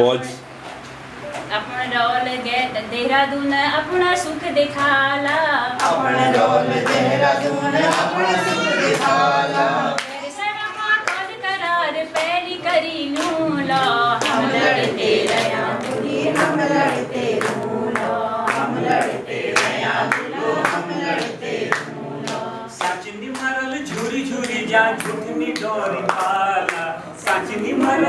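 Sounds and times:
hand clapping: 0:04.7 - 0:09.2, 0:10.0 - 0:10.2, 0:10.9 - 0:11.4, 0:12.1 - 0:28.0
group singing folk song: 0:04.7 - 0:28.0.

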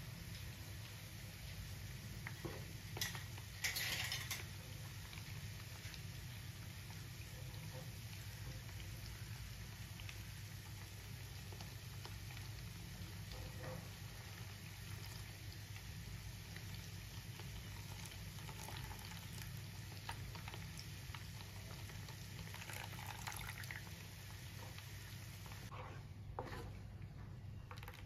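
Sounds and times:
ghee bubbling and crackling: 0:00.0 - 0:28.0
hot ghee pouring into pan: 0:17.4 - 0:24.0.

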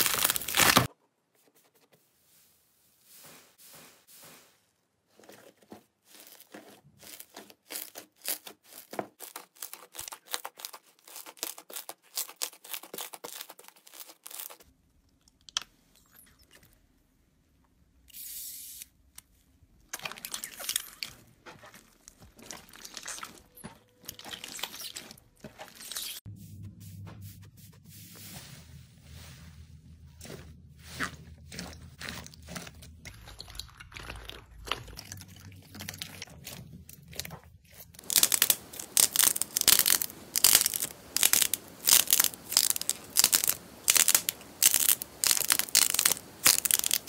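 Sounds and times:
slime crackling and popping: 0:00.0 - 0:00.9, 0:31.5 - 0:47.0.

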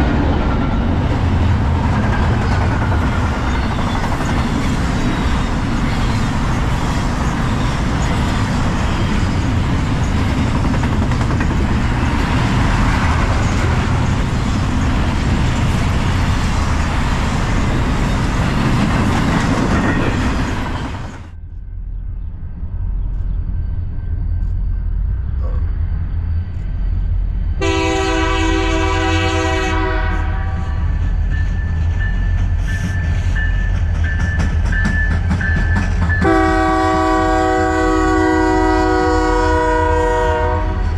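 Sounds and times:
diesel locomotive rumble: 0:00.0 - 0:40.9
train passing rushing noise: 0:00.0 - 0:40.9
locomotive air horn: 0:27.6 - 0:30.9, 0:36.2 - 0:40.9.

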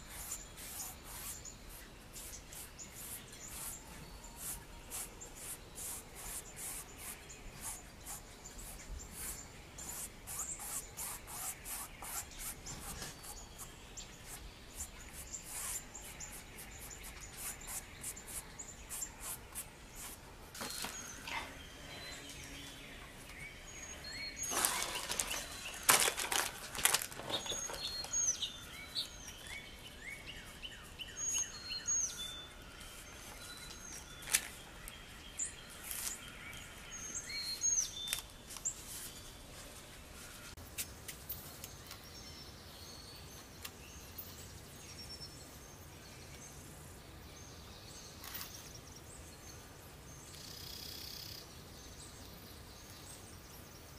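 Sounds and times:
bristle brush scrubbing paint: 0:00.0 - 0:20.2
birds chirping: 0:00.0 - 0:40.6.

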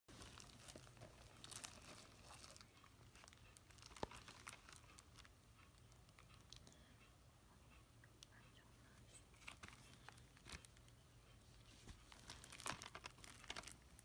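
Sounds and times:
plastic wrapping crinkling: 0:00.1 - 0:05.3, 0:09.3 - 0:10.9, 0:11.7 - 0:14.0.

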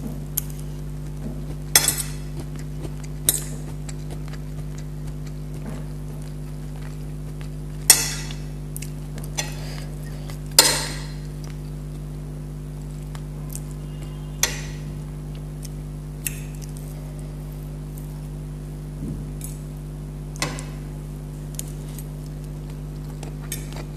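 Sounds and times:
steady low hum: 0:00.0 - 0:23.9
metal spoon clinking on plates: 0:14.4 - 0:14.9.

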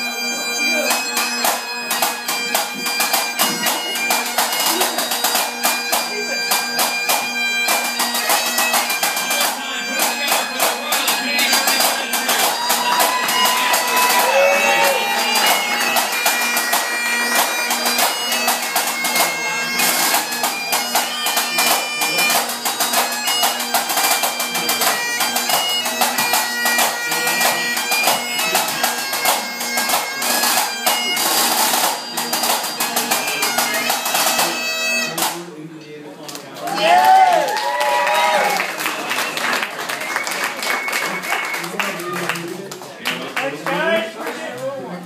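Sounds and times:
bagpipes playing: 0:00.0 - 0:35.4, 0:38.0 - 0:42.2.

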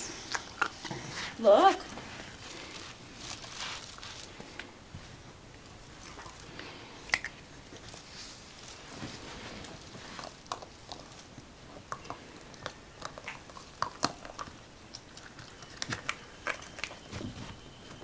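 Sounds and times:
teeth clicking on hollow plastic: 0:11.7 - 0:17.0.

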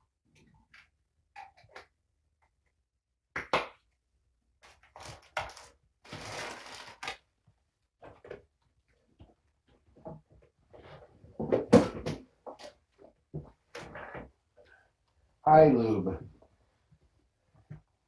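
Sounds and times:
plastic bag crinkling: 0:04.6 - 0:07.2.

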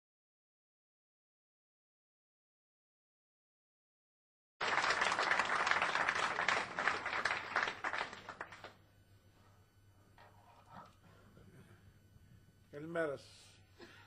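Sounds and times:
audience clapping: 0:04.6 - 0:08.8.

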